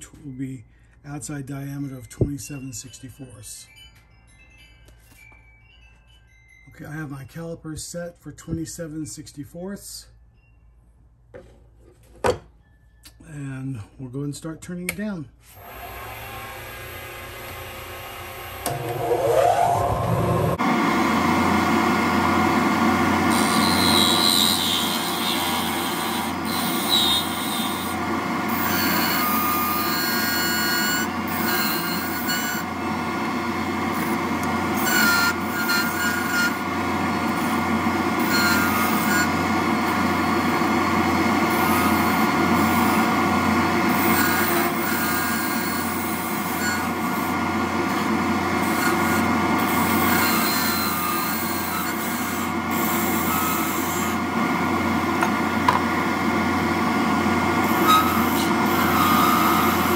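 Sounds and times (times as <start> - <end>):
wood lathe motor hum: 15.5 - 59.9
high-pitched cutting squeals: 18.7 - 20.6, 23.2 - 32.8, 34.8 - 37.6, 38.2 - 43.1, 48.6 - 54.2, 57.6 - 59.9.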